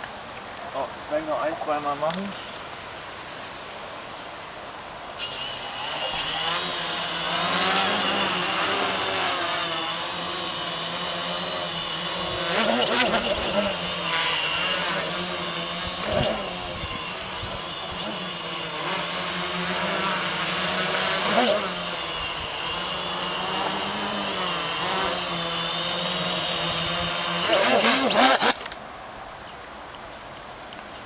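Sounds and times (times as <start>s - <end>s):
quadcopter motors buzzing: 0.2s - 28.8s.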